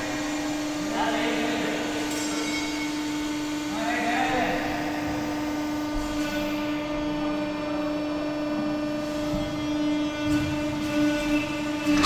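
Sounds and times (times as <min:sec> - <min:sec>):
hydraulic pump machine hum: 0:00.0 - 0:12.0.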